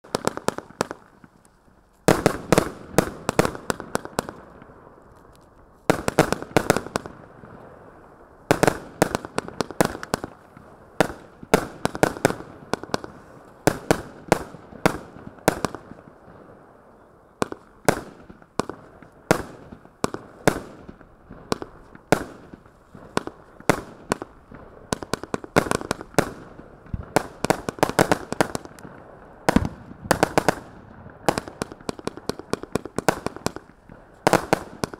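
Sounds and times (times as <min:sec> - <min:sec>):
firework bangs: 0:02.1 - 0:04.8, 0:17.4 - 0:34.9.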